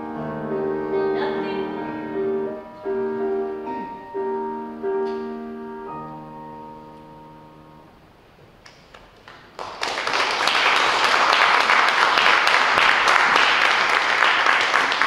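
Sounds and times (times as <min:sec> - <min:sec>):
piano chord: 0:00.0 - 0:08.1
audience applause: 0:09.0 - 0:15.0.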